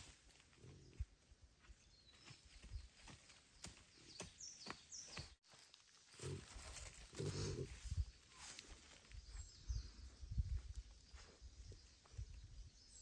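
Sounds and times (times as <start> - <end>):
snout rooting in soil and leaves: 0.0 - 1.0, 2.9 - 9.4
pig grunting and snuffling: 6.1 - 8.1.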